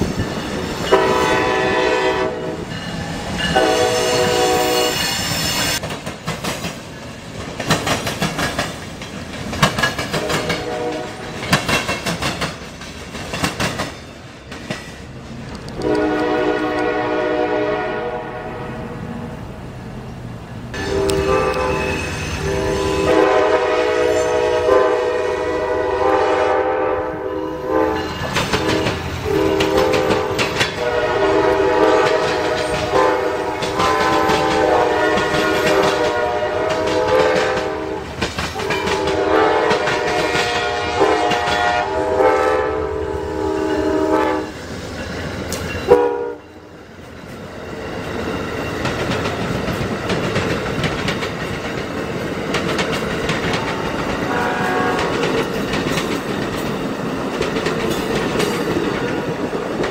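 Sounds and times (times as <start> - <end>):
passing train rumble: 0.0 - 59.9
train air horn blasts: 0.9 - 2.8, 3.4 - 5.8, 10.2 - 11.4, 15.8 - 19.0, 20.8 - 44.6, 45.9 - 46.7, 54.3 - 55.5
horn click: 15.7 - 16.9, 20.8 - 21.8.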